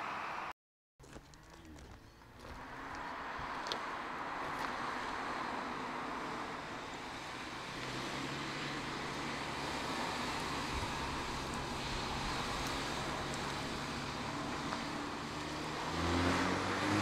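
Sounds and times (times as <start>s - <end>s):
low car engine hum: 0.0s - 17.0s
tyre and wind noise: 10.4s - 13.6s.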